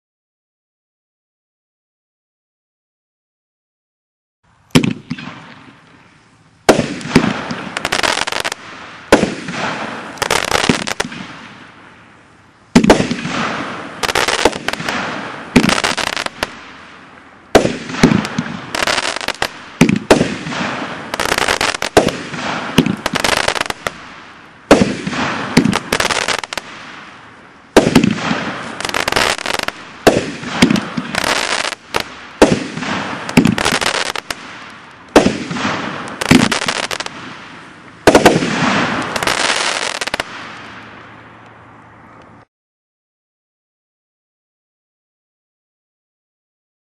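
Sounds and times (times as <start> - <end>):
firework bangs: 4.7 - 5.8, 6.6 - 41.2.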